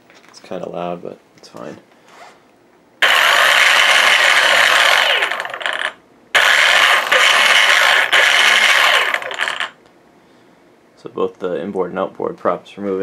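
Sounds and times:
electric motor and gear whirr: 3.0 - 9.8.

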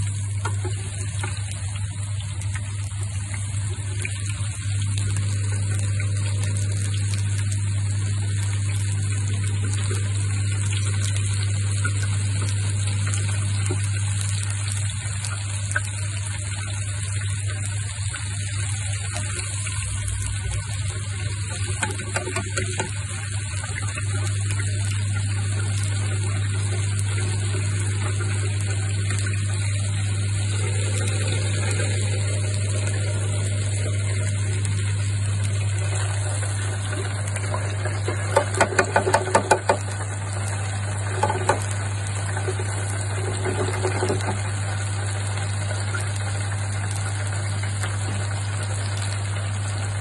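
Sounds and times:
oil bubbling and crackling: 0.0 - 50.0.

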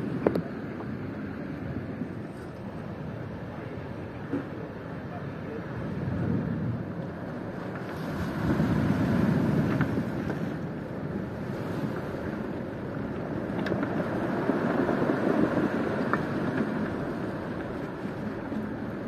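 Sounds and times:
wind buffeting microphone: 0.0 - 19.0
surf breaking on pebble shore: 5.8 - 19.0.

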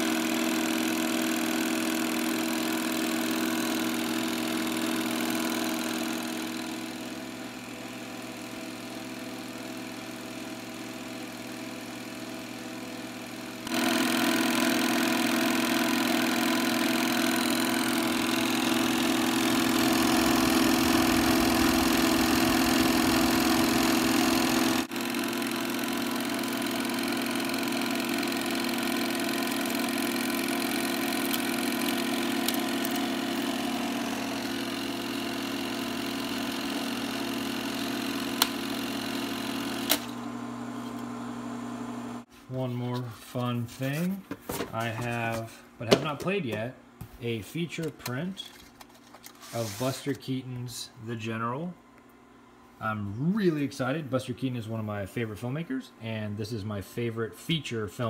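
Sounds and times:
film projector running: 0.0 - 42.3.

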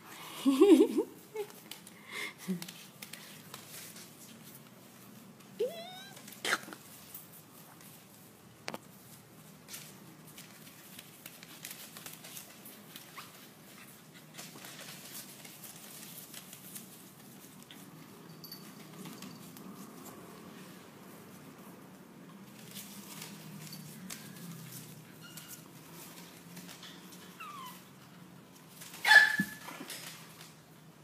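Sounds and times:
puppy yelping: 5.6 - 6.7, 27.3 - 27.9, 29.0 - 29.7
paws scratching on newspaper: 6.1 - 18.2, 19.2 - 30.8.

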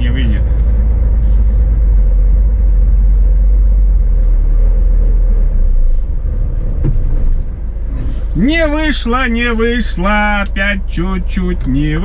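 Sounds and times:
truck diesel engine rumbling: 0.0 - 12.0.

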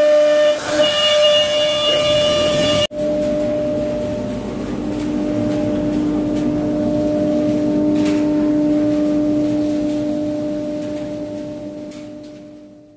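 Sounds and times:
wood-carving router humming: 0.0 - 2.9.

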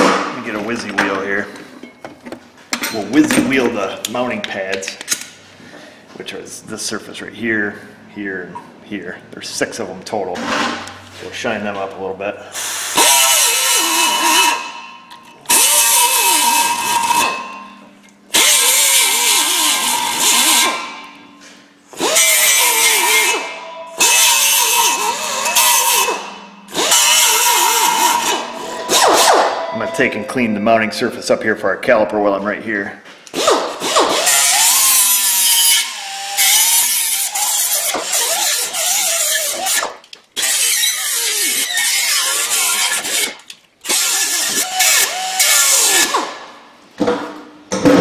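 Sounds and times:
air die grinder on metal: 12.6 - 14.9, 15.5 - 21.1, 21.9 - 30.0, 33.4 - 46.4.

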